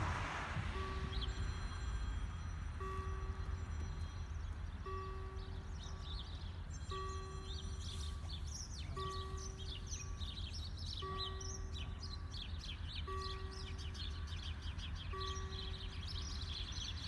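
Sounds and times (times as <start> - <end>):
level crossing warning bell: 0.0 - 17.0
birds chirping: 0.8 - 17.0.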